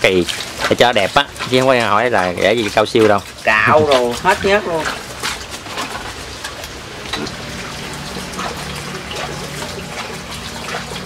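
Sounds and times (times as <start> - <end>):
water running into basin: 0.0 - 11.0
low hum: 5.8 - 11.0.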